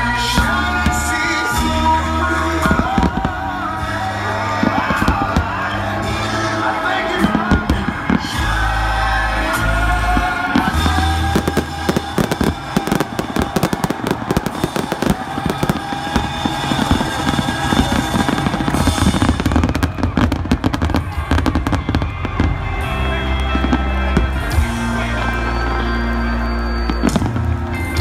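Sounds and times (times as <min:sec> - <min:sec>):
music playing: 0:00.0 - 0:28.0
fireworks pops and bangs: 0:02.6 - 0:08.5, 0:10.0 - 0:24.6, 0:26.8 - 0:28.0.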